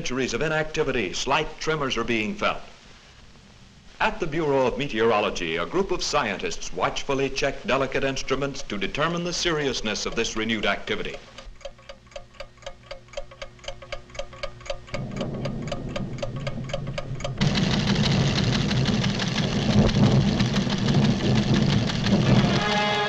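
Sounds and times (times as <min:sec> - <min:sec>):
seismograph ticking: 0:00.0 - 0:23.0
low hum: 0:14.1 - 0:23.0
loud low rumble: 0:15.0 - 0:23.0.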